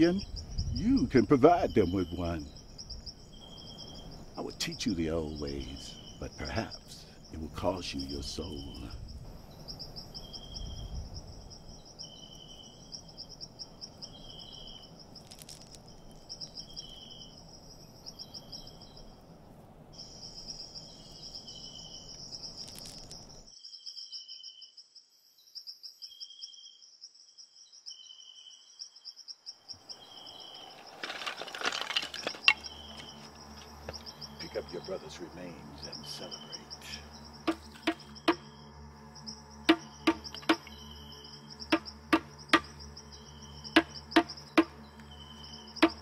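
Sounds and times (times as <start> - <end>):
low background hiss: 0.0 - 23.5
insects chirring: 0.0 - 46.0
rustling: 15.2 - 16.2, 30.5 - 34.1.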